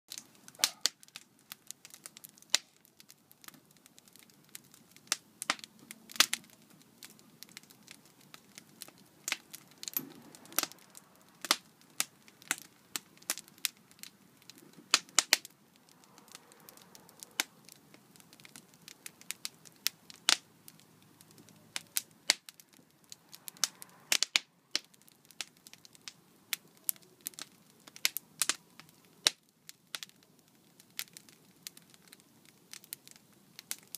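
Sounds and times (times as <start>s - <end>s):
wood fire crackling and popping: 0.1s - 33.9s.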